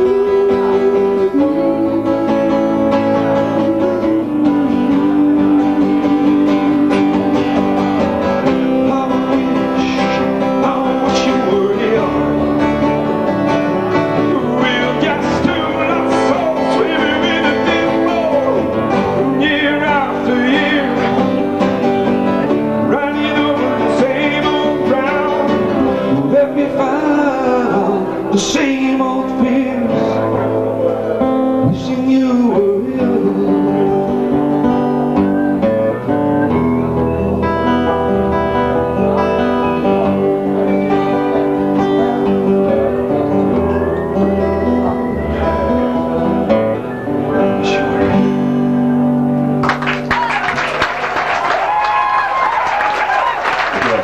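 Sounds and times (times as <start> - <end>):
acoustic bass guitar: 0.0 - 50.3
acoustic guitars strumming: 0.0 - 54.0
wavering lead melody: 33.3 - 49.7.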